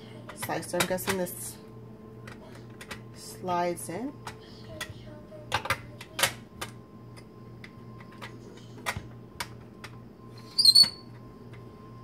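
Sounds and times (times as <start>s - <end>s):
hard plastic clicking and tapping: 4.2s - 6.8s.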